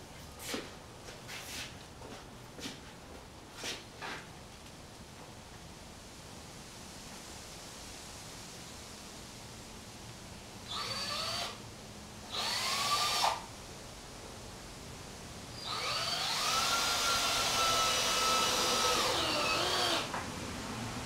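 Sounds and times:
power drill motor whining: 0:10.7 - 0:11.6, 0:12.3 - 0:13.4, 0:15.6 - 0:20.2.

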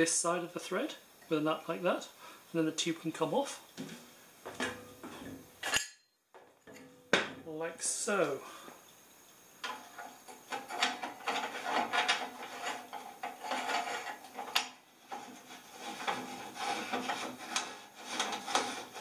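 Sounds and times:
metal threads scraping: 0:09.6 - 0:19.0.

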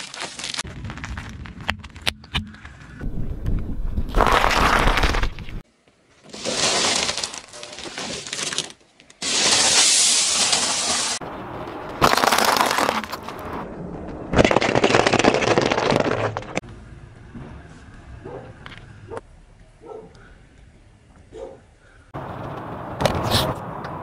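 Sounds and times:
car tyre crushing candies and pasta: 0:04.1 - 0:05.5, 0:06.2 - 0:13.6, 0:14.3 - 0:16.6.

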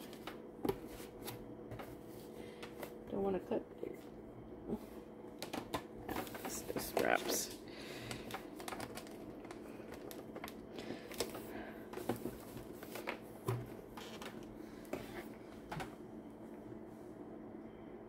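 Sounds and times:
hands tapping and rustling doll box: 0:08.2 - 0:15.0.

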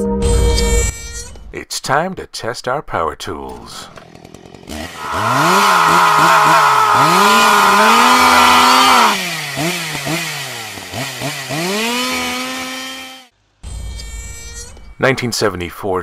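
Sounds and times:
chainsaw engine revving: 0:03.6 - 0:13.3.

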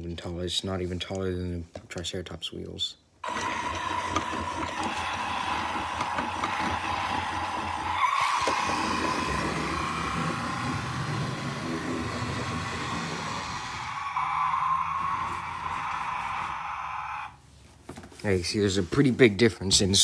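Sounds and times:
toy truck motor whine: 0:03.2 - 0:16.5.

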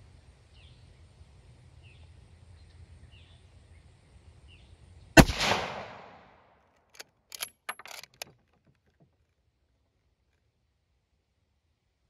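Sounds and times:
rifle shot: 0:05.2 - 0:06.4
rifle bolt clicking and clacking: 0:06.9 - 0:08.4.

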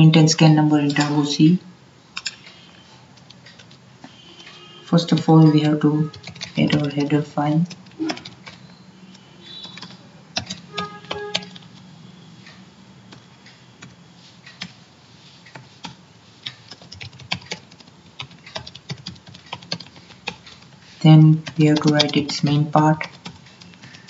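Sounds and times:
keyboard keys clicking: 0:05.1 - 0:14.8, 0:15.4 - 0:24.0.

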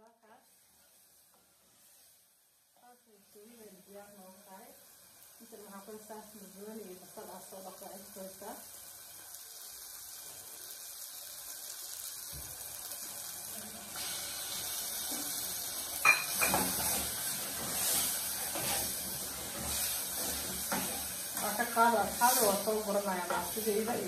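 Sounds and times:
vegetables sizzling in sauce: 0:00.0 - 0:24.0
metal clink on pot: 0:16.0 - 0:16.7
stirring in pot: 0:16.0 - 0:23.9.

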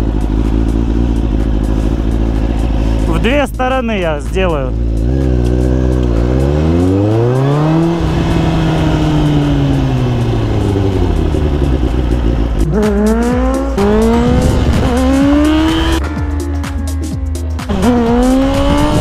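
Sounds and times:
motorcycle engine revving: 0:00.0 - 0:19.0.

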